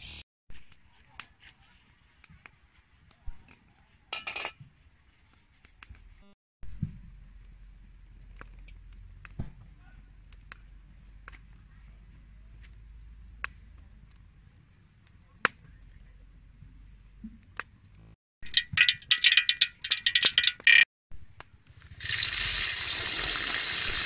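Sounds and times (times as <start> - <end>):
wood fire crackling: 21.4 - 24.0.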